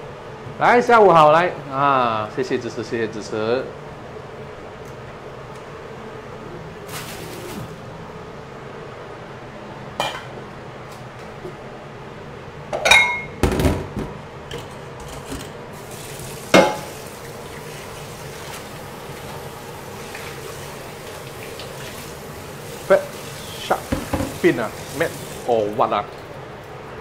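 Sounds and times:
steady background hiss: 0.0s - 13.3s, 15.6s - 27.0s
metal bowls clanking in sink: 12.8s - 13.4s, 16.5s - 17.0s, 23.1s - 25.2s.

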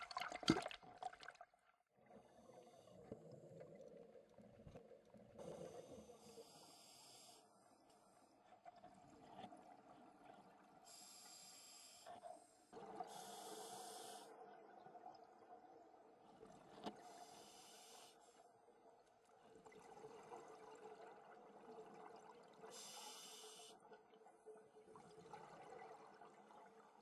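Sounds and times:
scuba regulator breathing: 5.4s - 7.5s, 13.1s - 14.3s, 17.0s - 18.3s.

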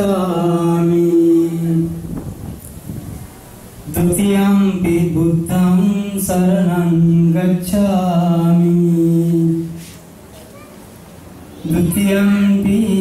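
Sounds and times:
man chanting: 0.0s - 2.0s, 3.9s - 9.8s, 11.6s - 13.0s.

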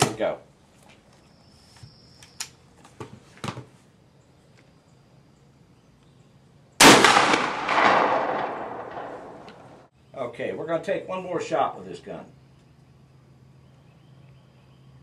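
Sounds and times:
gunshot with echo: 6.8s - 9.8s.

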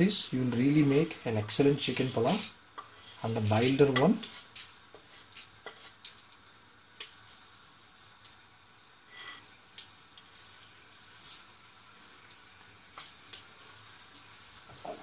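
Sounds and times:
spices sizzling in hot oil: 0.0s - 15.0s
small crackles and pops: 2.3s - 3.0s, 4.0s - 8.5s, 9.4s - 15.0s.

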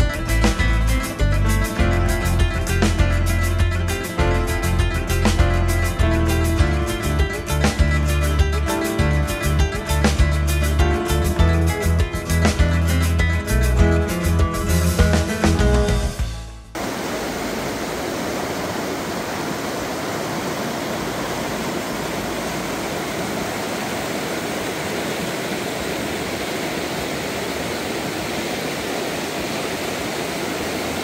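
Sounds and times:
music: 0.0s - 16.8s
river rushing: 16.8s - 31.0s.

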